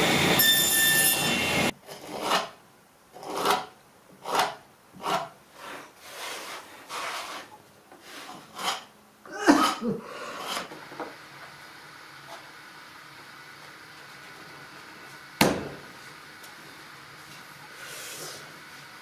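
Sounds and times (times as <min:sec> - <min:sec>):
steel chisel scraping wood: 0:03.2 - 0:08.9, 0:09.6 - 0:10.8.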